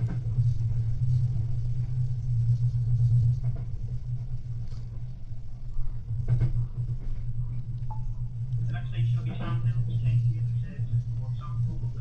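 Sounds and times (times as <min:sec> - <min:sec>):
train rumble inside carriage: 0:00.0 - 0:12.0.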